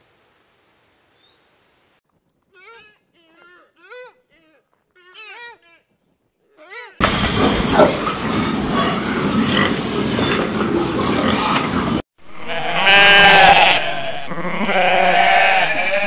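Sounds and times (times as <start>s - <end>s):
pigs grunting: 7.0s - 12.0s
goats bleating: 12.5s - 16.0s.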